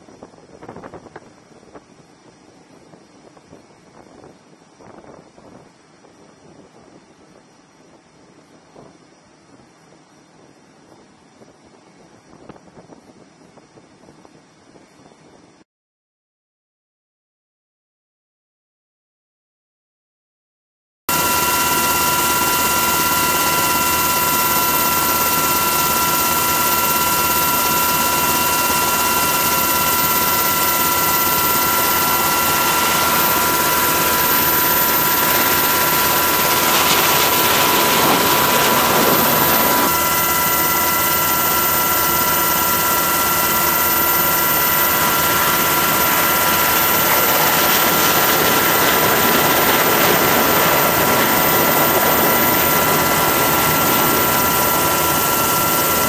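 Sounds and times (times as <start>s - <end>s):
aircraft turbine whine: 21.1s - 56.0s.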